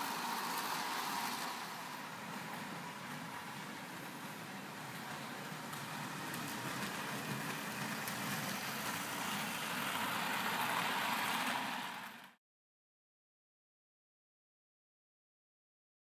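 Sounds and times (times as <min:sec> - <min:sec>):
model train wheels rolling on rails: 0:00.0 - 0:12.4.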